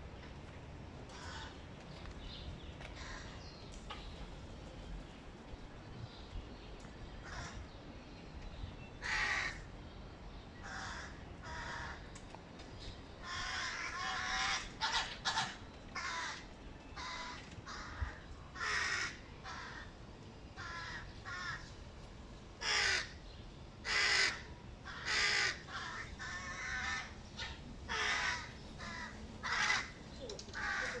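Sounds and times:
crow fledglings cawing: 1.1s - 1.6s, 2.8s - 3.6s, 7.2s - 7.7s, 9.0s - 9.7s, 10.6s - 12.1s, 13.2s - 20.0s, 20.6s - 21.8s, 22.6s - 31.0s.

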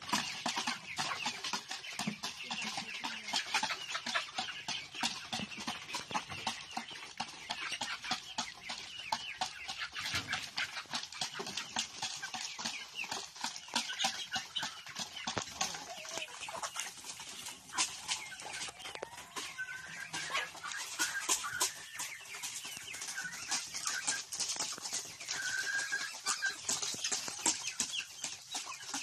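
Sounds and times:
beaks pecking feed: 0.0s - 29.0s
chickens clucking: 0.0s - 29.0s.

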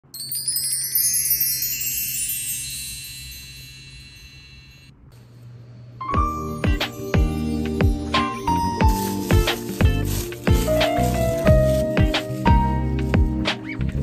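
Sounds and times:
wind chimes ringing: 0.0s - 5.0s, 6.2s - 10.8s
light music with plucked notes: 6.0s - 14.0s.

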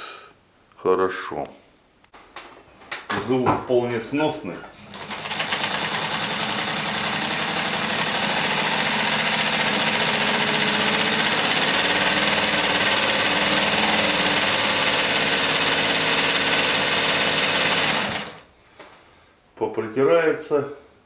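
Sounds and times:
sewing machine clattering: 4.8s - 18.4s.

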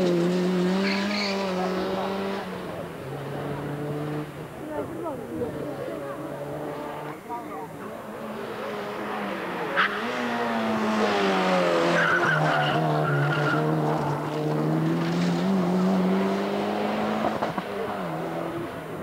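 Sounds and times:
rally car engine working hard: 0.0s - 19.0s
tyre squeal: 0.8s - 1.6s.

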